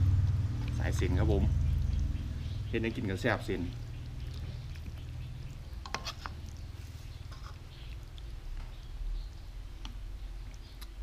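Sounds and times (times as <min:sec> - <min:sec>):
low hum: 0:00.0 - 0:02.8
utensils scraping a wok: 0:05.7 - 0:07.8.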